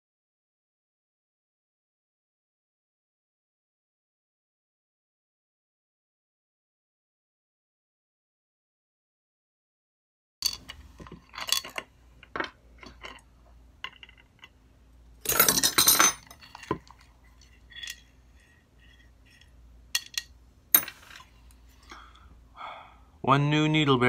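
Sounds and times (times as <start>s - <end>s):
metal tools clinking on workbench: 10.4s - 13.2s, 15.2s - 21.3s.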